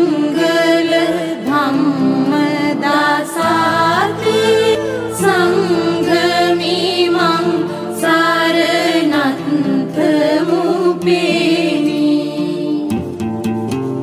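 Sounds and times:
slow sung chant: 0.0s - 13.1s.

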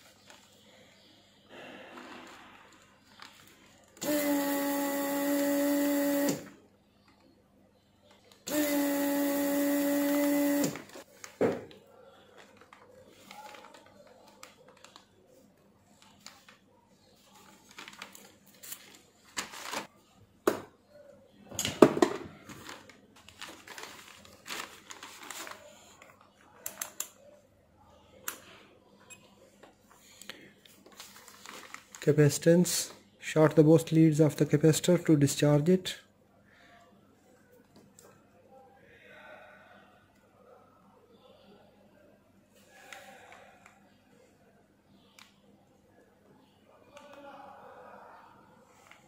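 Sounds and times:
desoldering vacuum pump humming: 4.0s - 6.5s, 8.5s - 11.0s.

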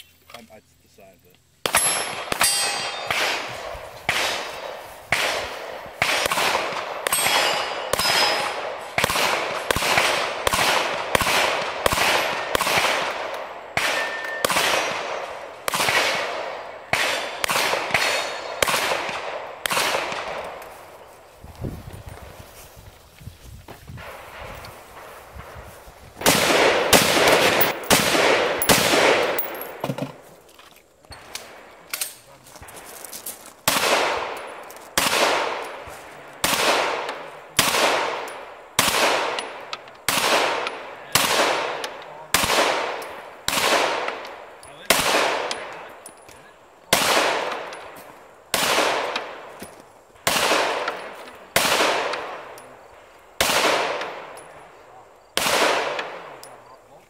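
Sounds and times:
pistol shots with echo: 1.6s - 20.7s, 26.2s - 29.8s, 33.6s - 46.2s, 46.8s - 56.8s.

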